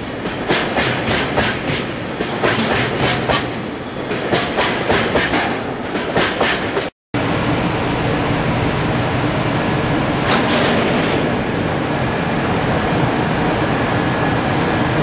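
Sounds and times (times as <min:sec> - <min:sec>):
train wheels clickety-clack: 0:00.0 - 0:06.9, 0:10.2 - 0:11.3.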